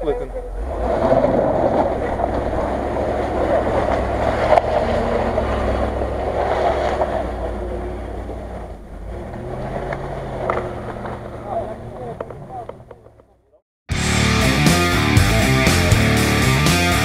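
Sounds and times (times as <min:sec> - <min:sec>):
engine running under load: 0:00.0 - 0:13.2.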